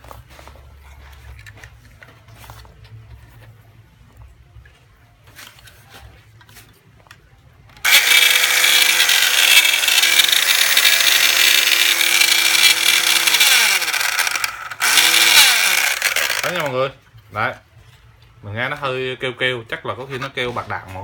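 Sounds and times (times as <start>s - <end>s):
circular saw motor running: 7.8s - 16.8s.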